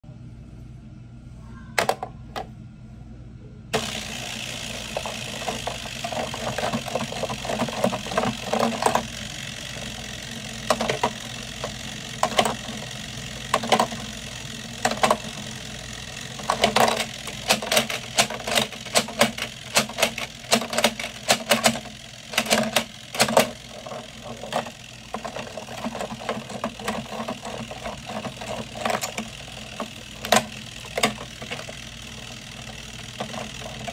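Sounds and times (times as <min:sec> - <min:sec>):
clockwork timer whirring: 0:03.7 - 0:33.9
ball and plastic levers clicking: 0:16.4 - 0:31.8.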